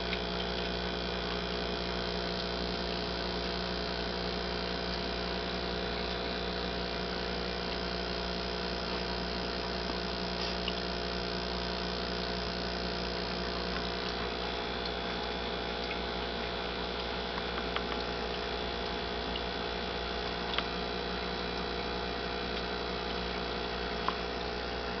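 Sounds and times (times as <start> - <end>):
aquarium equipment humming: 0.0 - 25.0
faint ticks: 12.3 - 24.6.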